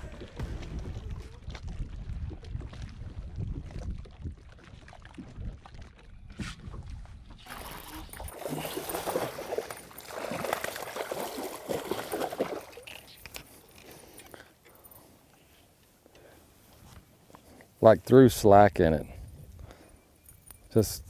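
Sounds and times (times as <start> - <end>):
wind rumble on microphone: 0.0 - 8.2
fish splashing in water: 7.4 - 13.2.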